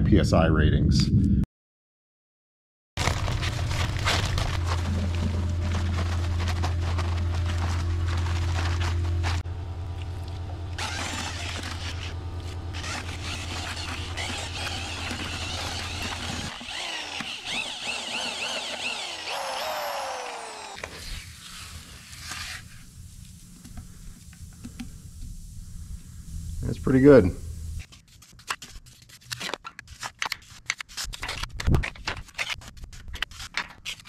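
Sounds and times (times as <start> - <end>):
drill paddle mixer churning: 10.0 - 21.2.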